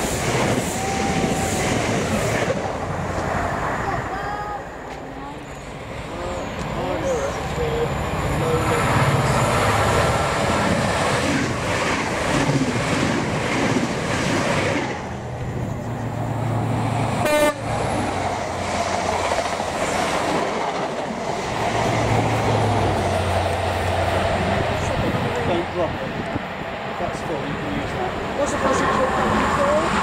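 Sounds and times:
train rumbling past: 0.0s - 30.0s
train horn toot: 17.2s - 17.7s.

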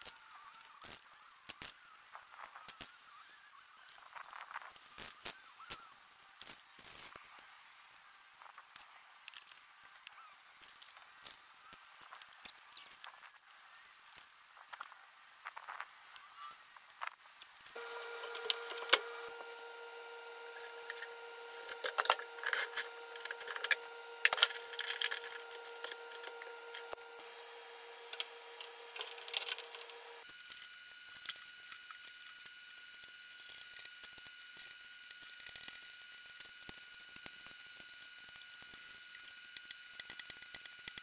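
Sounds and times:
steady high hum: 17.7s - 30.4s.

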